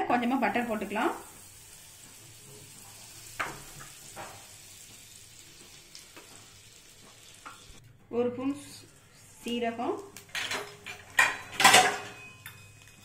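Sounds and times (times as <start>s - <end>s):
butter sizzling in a pan: 0.1s - 7.8s.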